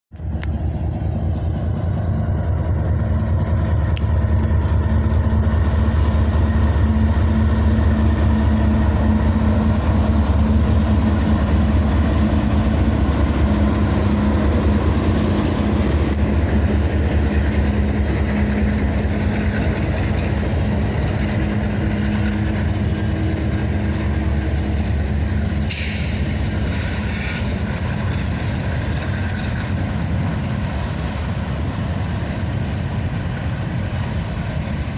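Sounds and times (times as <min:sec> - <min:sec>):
diesel locomotive engine rumble: 0:00.1 - 0:34.9
brief high hiss: 0:25.6 - 0:27.6.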